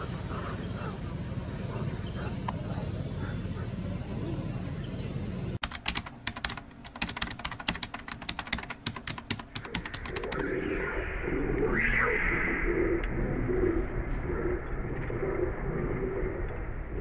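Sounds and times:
outdoor background sound: 0.0s - 17.0s
keyboard typing clicks: 5.6s - 10.4s.

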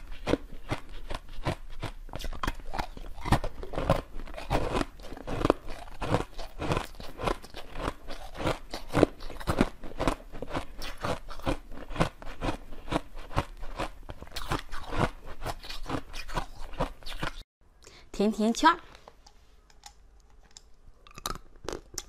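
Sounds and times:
ice being chewed crunching: 0.0s - 17.4s, 19.8s - 22.0s.

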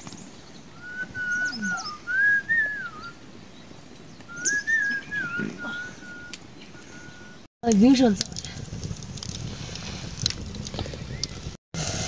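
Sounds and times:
person whistling slow tune: 0.8s - 3.2s, 4.3s - 7.4s.

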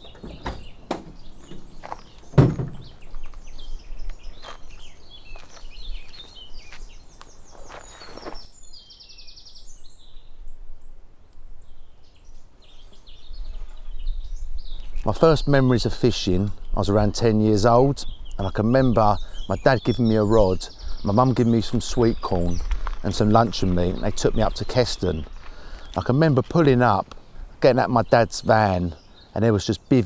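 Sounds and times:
birds chirping and singing: 0.0s - 30.0s
heavy thump: 2.3s - 3.0s
sharp knocks: 2.3s - 3.0s.

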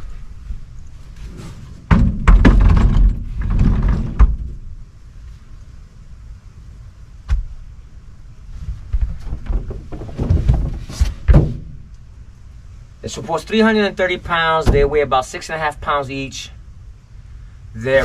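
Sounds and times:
cot frame knocking and thumping: 1.9s - 4.6s, 8.7s - 11.8s.

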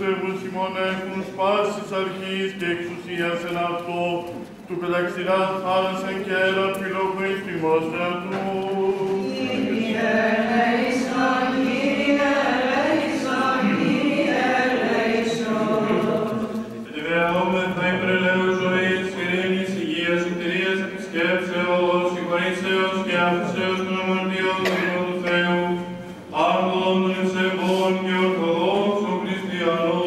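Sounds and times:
voices chanting: 7.2s - 20.6s.

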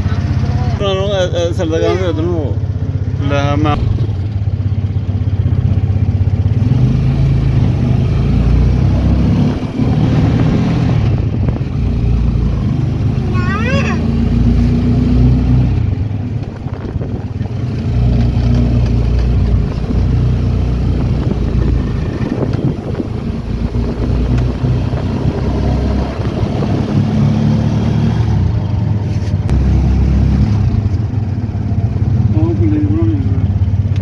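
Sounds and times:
vehicle engine rumbling: 0.0s - 34.0s.

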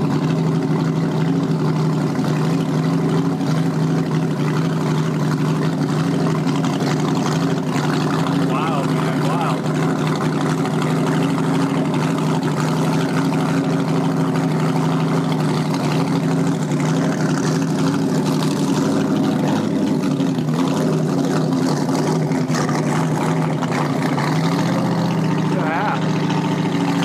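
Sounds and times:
boat engine running steadily: 0.0s - 27.0s.

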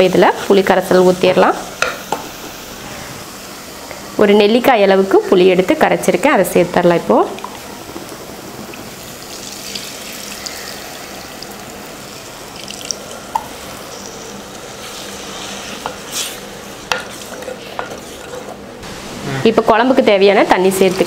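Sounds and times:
liquid splashing and sizzling: 7.0s - 21.0s
wooden spatula stirring: 14.6s - 18.6s.

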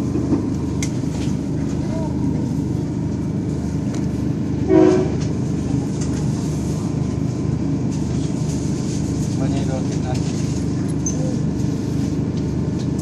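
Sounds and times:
train rumbling on tracks: 0.0s - 13.0s
train horn blast: 4.6s - 5.3s.

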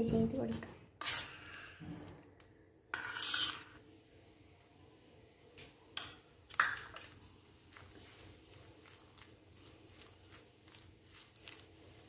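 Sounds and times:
wet squishing and scraping: 6.8s - 12.0s.

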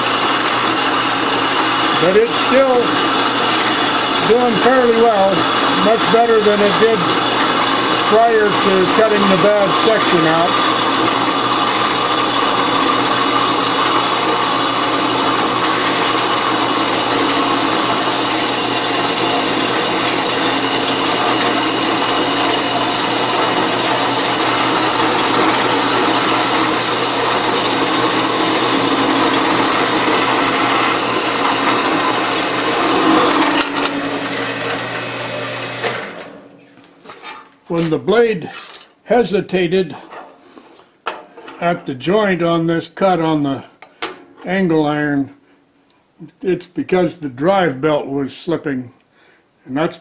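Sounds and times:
saw blade cutting metal: 0.0s - 36.3s
bandsaw motor hum: 0.0s - 36.8s.

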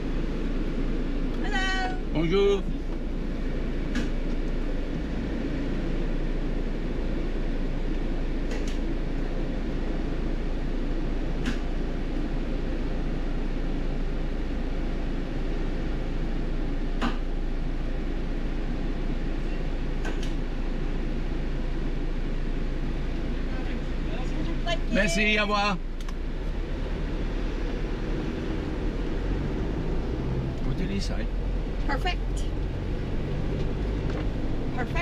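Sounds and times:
engine idling hum: 0.0s - 35.0s.

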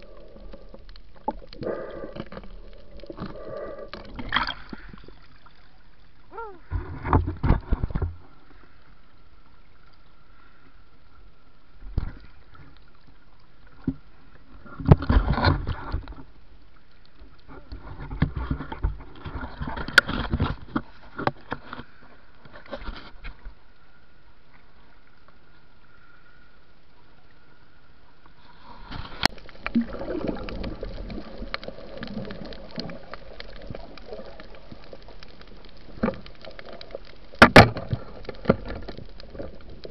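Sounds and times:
water splashing and bubbling: 0.0s - 10.3s, 28.2s - 39.9s.

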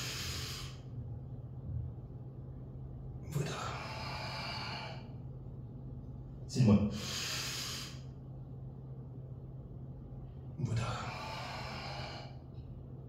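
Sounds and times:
man breathing heavily: 0.0s - 1.0s, 3.4s - 5.3s, 6.9s - 8.2s, 10.7s - 12.7s
steady low hum: 0.0s - 13.0s
man speaking: 6.5s - 7.0s.

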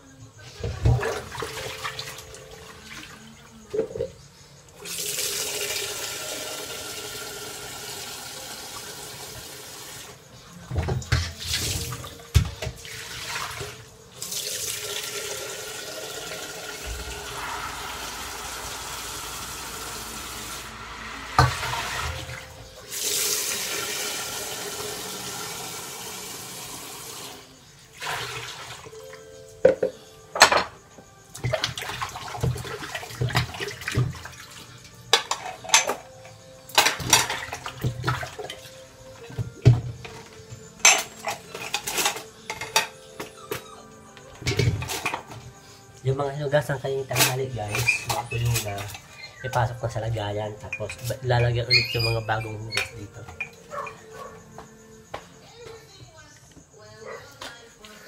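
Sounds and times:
tap running into sink: 16.1s - 20.6s, 21.3s - 25.1s
dishware knocking: 21.3s - 22.4s, 29.6s - 30.8s, 50.7s - 54.2s.

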